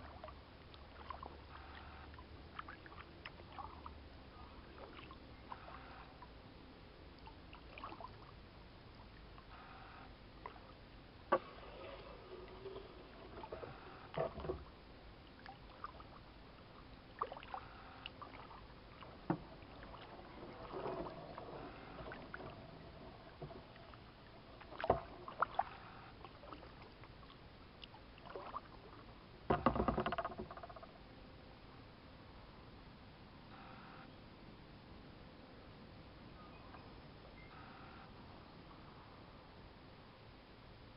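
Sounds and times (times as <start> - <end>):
paddle splashes and drips: 0.0 - 6.3, 7.2 - 9.6, 10.4 - 30.8.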